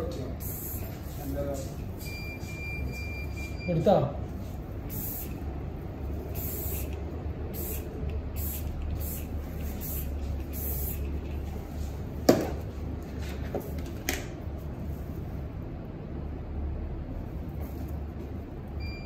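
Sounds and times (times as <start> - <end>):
steady low hum: 0.0 - 19.0
spray bottle hissing: 4.8 - 5.6, 6.2 - 11.2.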